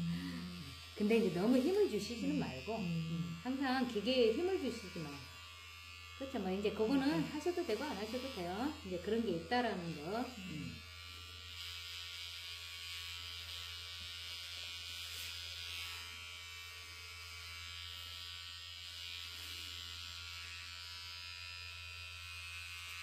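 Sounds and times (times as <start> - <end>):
pet hair clipper running: 0.0 - 23.0.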